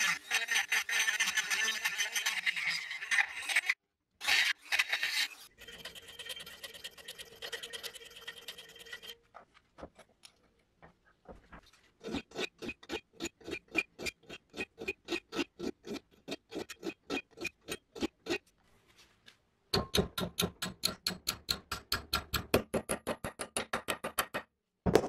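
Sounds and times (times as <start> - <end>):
hand file rasping on steel: 0.0 - 9.2, 12.0 - 18.4
rotary tool grinding steel: 0.0 - 9.2, 12.0 - 18.4.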